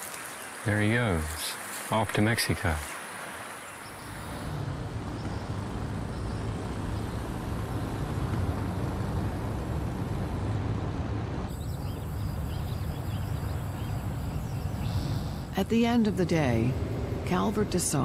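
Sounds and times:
car driving rumble: 3.8s - 18.0s.

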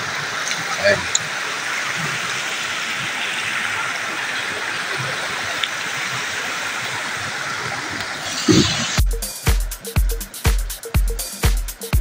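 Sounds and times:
river rushing over rocks: 0.0s - 9.0s.

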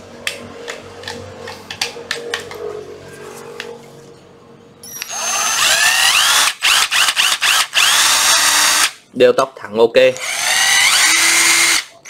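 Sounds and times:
impact driver motor whining: 4.9s - 8.9s, 10.2s - 11.9s.

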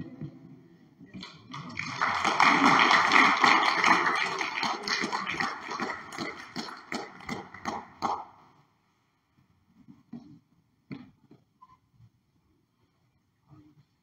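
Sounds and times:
congregation applauding: 1.2s - 8.2s.

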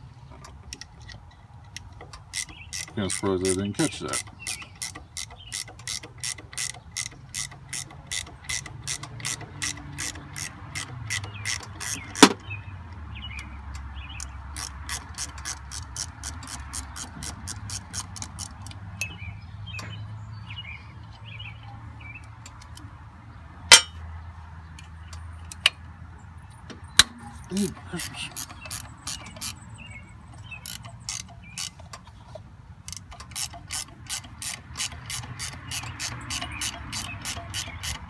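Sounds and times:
socket ratchet clicking: 0.4s - 20.0s, 26.6s - 32.1s, 32.8s - 38.0s
sharp metal clacks: 23.7s - 24.0s.

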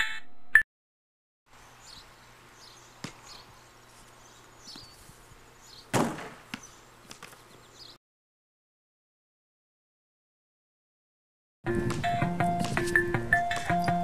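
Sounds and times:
faint outdoor background noise: 1.5s - 8.0s
basketball bouncing on pavement: 3.0s - 3.4s, 5.9s - 7.4s, 11.7s - 14.0s.

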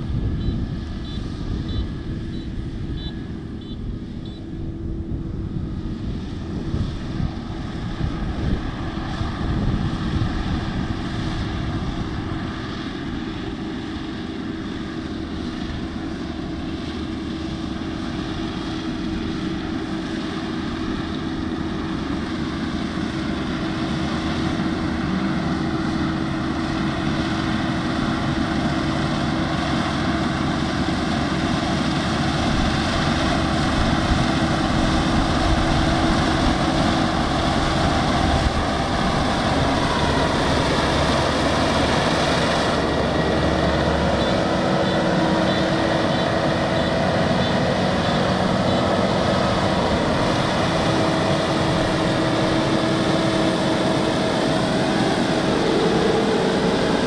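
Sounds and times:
combine harvester droning: 0.0s - 57.0s.

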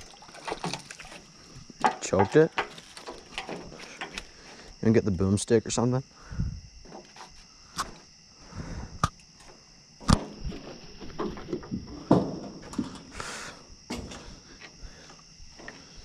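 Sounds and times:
knocks and thumps handling fish: 0.0s - 4.2s, 10.0s - 13.1s
night insects chorus: 0.0s - 16.0s.

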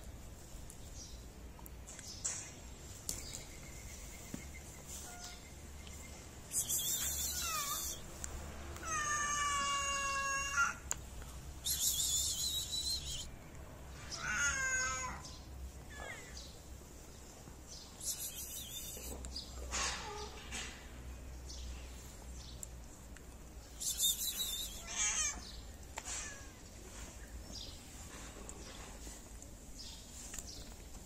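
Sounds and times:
short high hiss-like noise: 6.5s - 8.2s
cat meowing: 8.8s - 10.8s, 14.1s - 15.2s, 24.7s - 25.4s.

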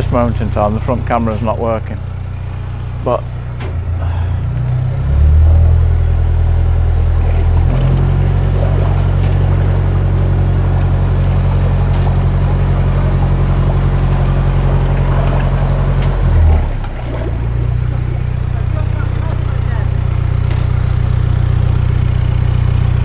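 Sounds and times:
boat engine running: 0.0s - 23.0s.

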